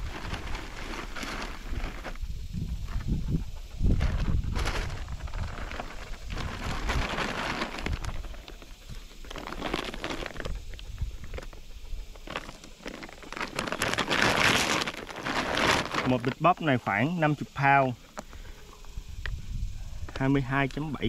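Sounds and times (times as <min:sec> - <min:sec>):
plastic sack crinkling: 0:00.0 - 0:02.2, 0:04.0 - 0:08.6, 0:09.3 - 0:10.6, 0:12.2 - 0:16.4
corn shifting inside sack: 0:00.0 - 0:03.1, 0:04.0 - 0:17.0.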